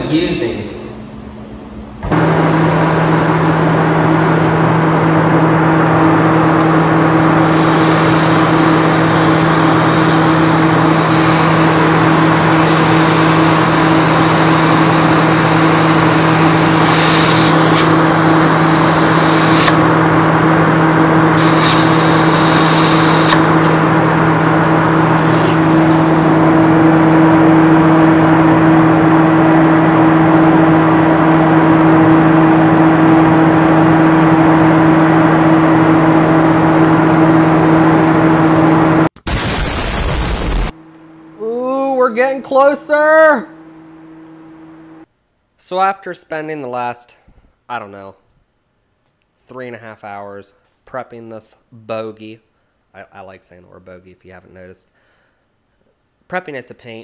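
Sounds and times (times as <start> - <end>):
machine humming: 0.0 - 45.1
high hissing bursts: 7.1 - 11.6, 16.6 - 19.9, 21.3 - 23.7.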